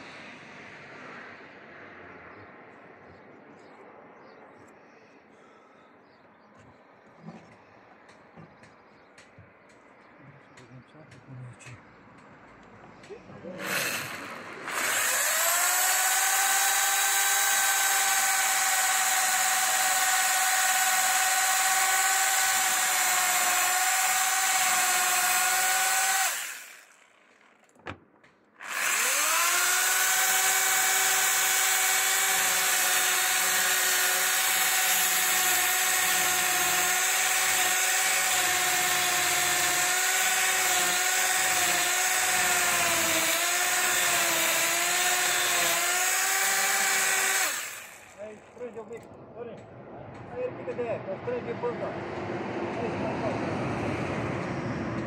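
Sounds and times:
power tool motor whine: 13.4s - 28.0s, 28.6s - 48.2s.

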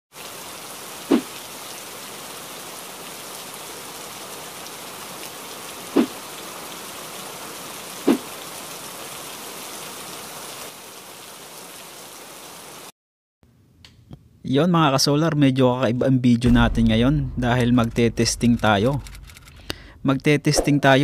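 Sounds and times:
steady rainfall hissing: 0.1s - 12.9s.

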